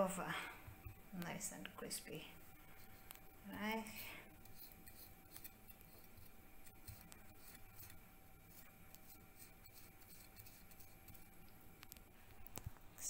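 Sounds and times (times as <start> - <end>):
faint steady hum: 0.0 - 13.0
knife scoring pork rind: 4.4 - 11.3.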